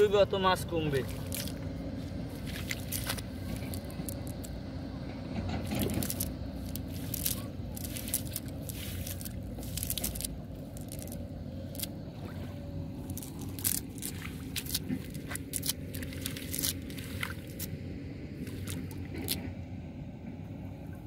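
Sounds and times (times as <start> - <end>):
low background rumble: 0.0 - 21.0
net splashing in water: 1.0 - 1.6, 2.3 - 4.5, 5.6 - 17.8, 18.4 - 19.5.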